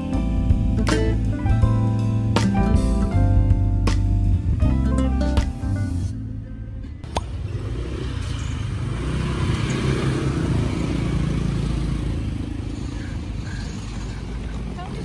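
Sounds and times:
street traffic: 0.0 - 15.0
motorbike passing: 5.6 - 15.0.

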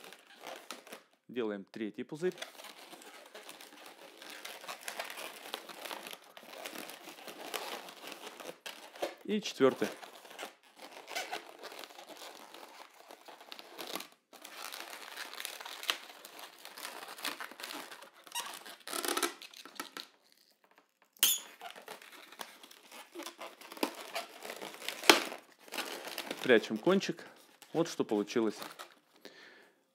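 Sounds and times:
latex balloons squeaking: 9.7 - 12.2, 17.7 - 19.5, 21.2 - 25.2.

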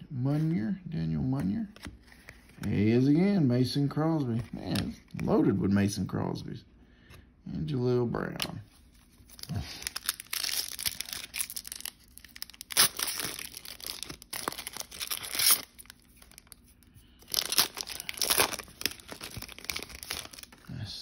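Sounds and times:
foil wrapper tearing and crinkling: 9.3 - 20.6.

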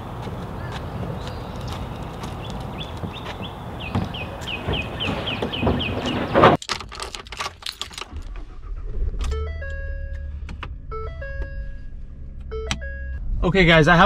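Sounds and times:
keys jangling: 6.6 - 8.2.

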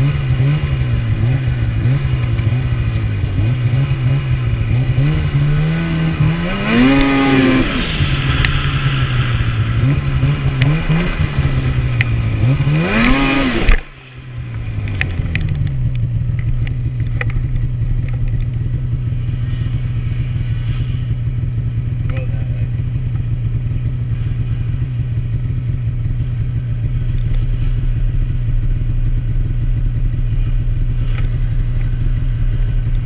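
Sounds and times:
snowmobile engine revving: 0.0 - 15.8, 18.6 - 21.9.

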